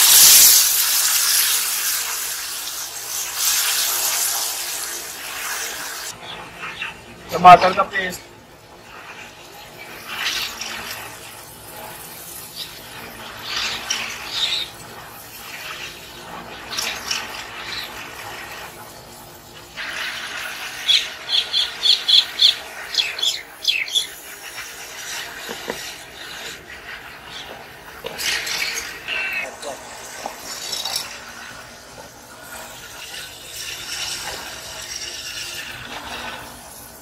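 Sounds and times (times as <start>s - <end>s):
paste sizzling in hot oil: 0.0s - 37.0s.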